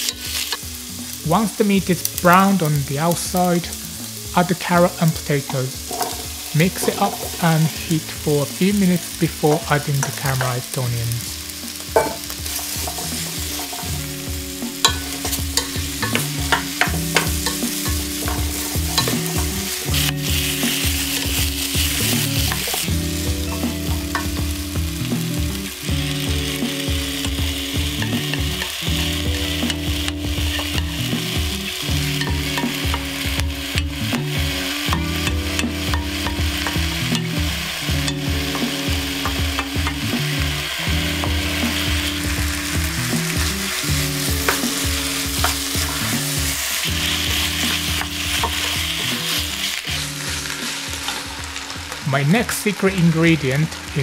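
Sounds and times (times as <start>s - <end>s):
meat and vegetables sizzling: 0.0s - 54.0s
wooden utensil scraping pot: 5.8s - 7.4s, 12.0s - 22.9s.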